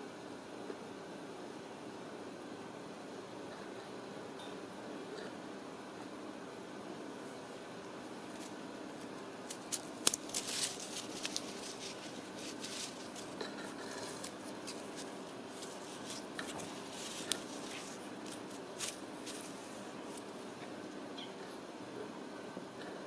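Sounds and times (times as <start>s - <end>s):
low room hum: 0.0s - 23.0s
kitten claws scratching on tile: 8.4s - 20.3s.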